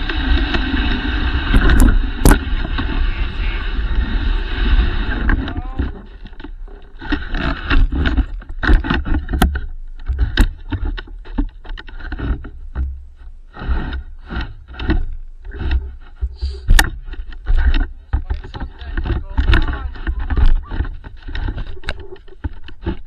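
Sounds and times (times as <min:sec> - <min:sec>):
sled knocks: 0:13.6 - 0:21.7.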